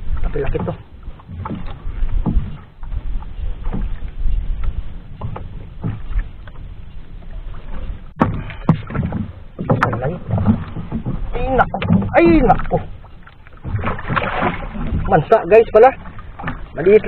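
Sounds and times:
water lapping against boat hull: 0.0 - 17.0
wind rumble on microphone: 0.0 - 17.0
sharp knocks: 8.2 - 11.2.

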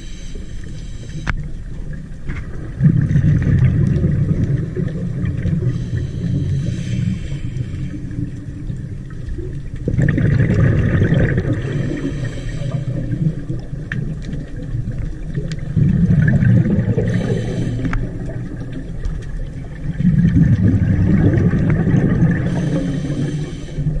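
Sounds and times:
underwater exhaled bubbles rumbling: 0.0 - 24.0
regulator hiss: 17.1 - 18.1, 22.4 - 24.0.

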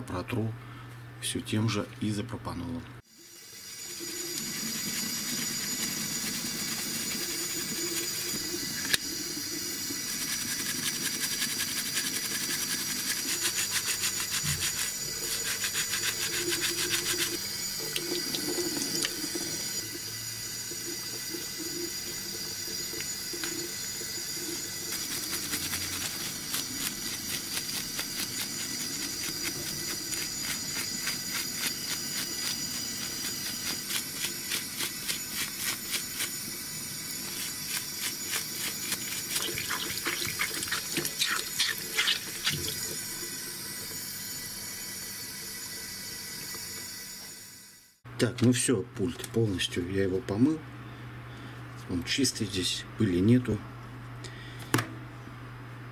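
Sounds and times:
water splashing in a sink: 3.6 - 44.0
toothbrush scrubbing plastic: 3.8 - 20.0, 20.7 - 43.5.

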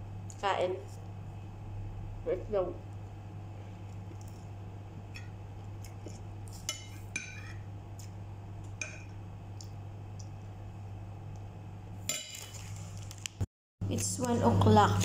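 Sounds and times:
low hum: 0.0 - 12.4
cutlery scraping a ceramic plate: 6.5 - 7.7.

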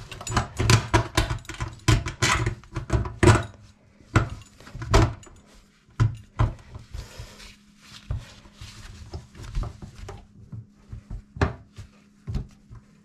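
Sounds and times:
tools clicking and knocking: 0.0 - 3.6.

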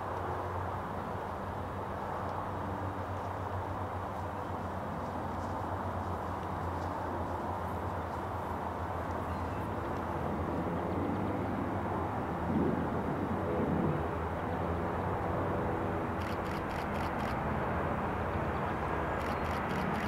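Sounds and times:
distant jet engines rumbling: 0.0 - 20.0
faint high ticks: 16.2 - 17.4, 19.2 - 20.0.

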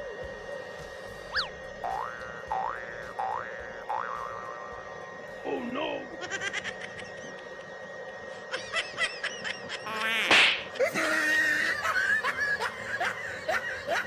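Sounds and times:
giggling laughter: 6.2 - 7.7, 8.4 - 14.0.

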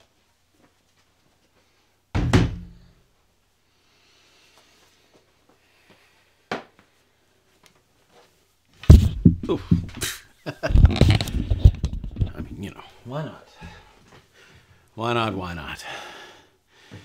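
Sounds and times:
heavy thump: 2.1 - 2.8, 8.8 - 10.0.

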